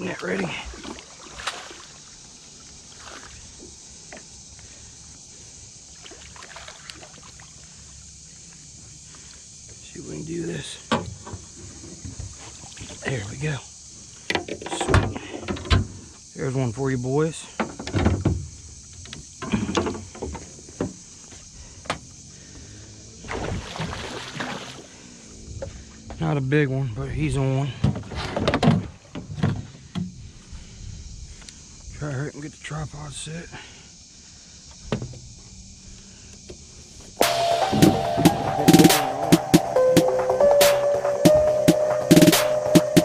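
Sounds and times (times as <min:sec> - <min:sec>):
landing net splashing in water: 0:00.0 - 0:02.2, 0:02.9 - 0:03.4, 0:06.0 - 0:07.7, 0:23.2 - 0:24.9.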